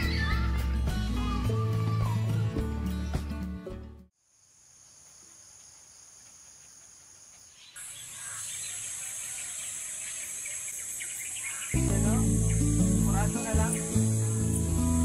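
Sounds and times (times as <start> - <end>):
insects high-pitched drone: 4.2 - 15.0
birds chirping: 5.1 - 15.0.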